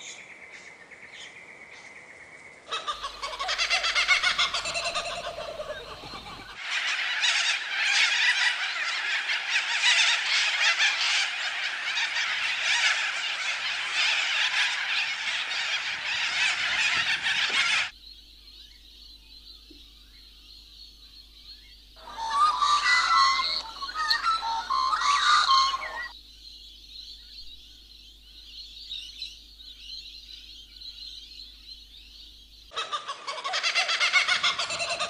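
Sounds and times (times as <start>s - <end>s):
faint chirps: 0.0s - 10.0s, 17.9s - 32.8s
din of animal calls: 2.7s - 18.0s, 21.9s - 26.2s, 32.7s - 35.0s.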